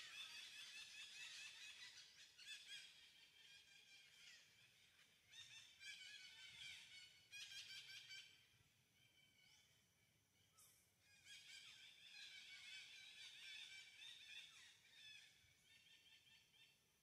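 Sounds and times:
small birds chirping and trilling: 0.0s - 17.0s.

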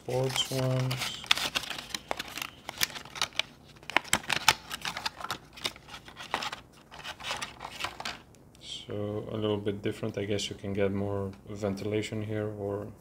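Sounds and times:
light plastic rustling: 0.1s - 8.2s.

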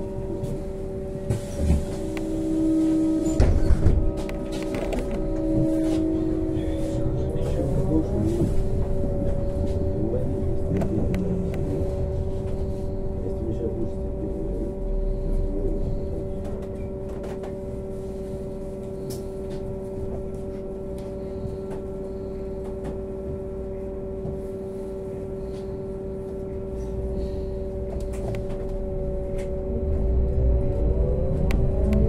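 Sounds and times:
trolleybus electric hum: 0.0s - 32.0s.

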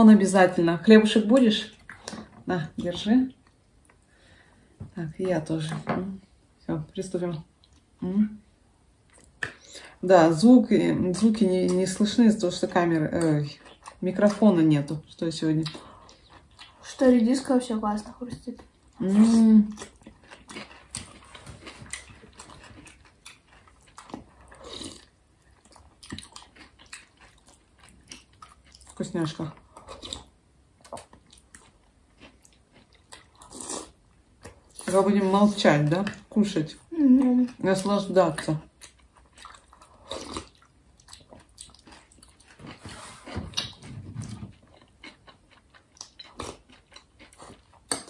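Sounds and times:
chewing and crunching: 13.2s - 14.5s, 15.5s - 17.1s, 18.3s - 36.4s, 38.3s - 48.0s.

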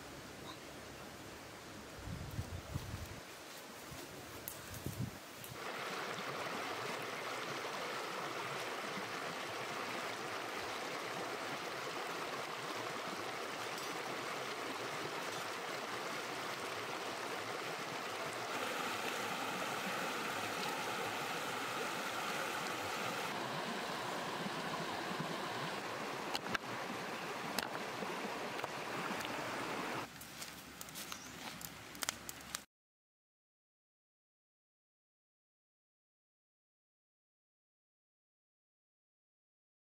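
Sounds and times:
river rushing over rocks: 5.6s - 30.1s.

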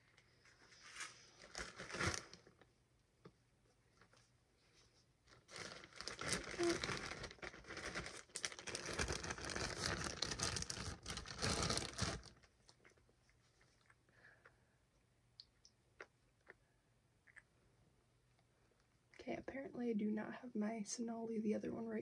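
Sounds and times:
plastic bag crinkling: 1.4s - 2.6s, 5.3s - 13.0s.

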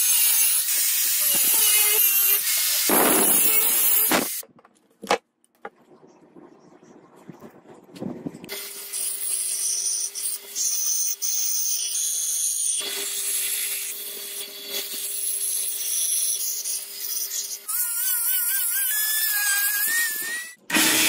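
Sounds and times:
belt grinder grinding steel: 0.0s - 4.4s, 8.7s - 21.0s.

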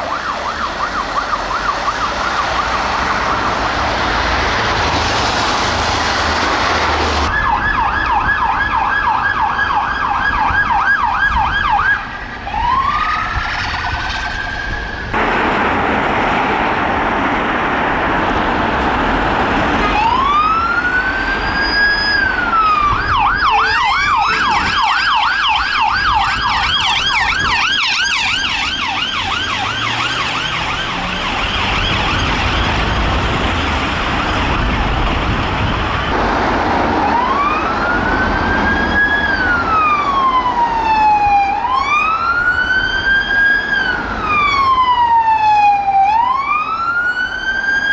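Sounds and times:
police siren yelp and wail: 0.0s - 47.9s
road traffic noise: 0.0s - 47.9s
higher-pitched siren yelping: 19.8s - 32.8s.

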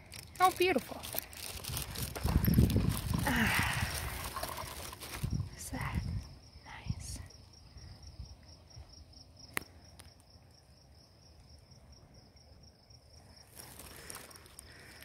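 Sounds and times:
rustling: 0.0s - 5.6s, 13.5s - 15.0s
crickets chirping: 0.0s - 15.0s.

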